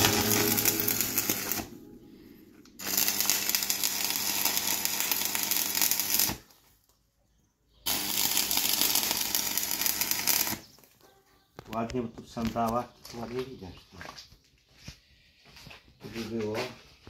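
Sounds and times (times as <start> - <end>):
arc welding crackling: 0.0 - 1.8, 2.8 - 6.5, 7.9 - 10.8.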